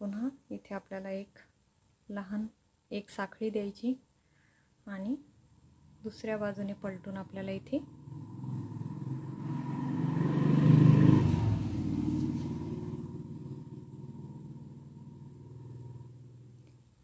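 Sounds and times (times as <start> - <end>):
vehicle engine rumble passing: 7.0 - 16.6.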